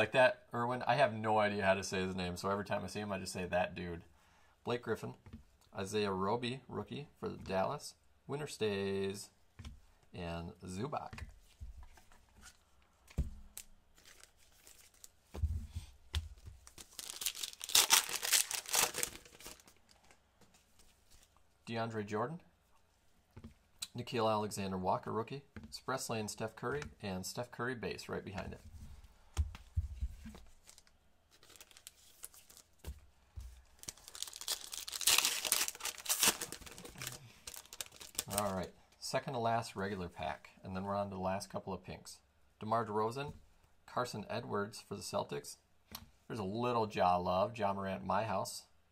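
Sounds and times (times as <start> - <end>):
foil pack tearing: 16.8 - 19.6, 33.8 - 38.5.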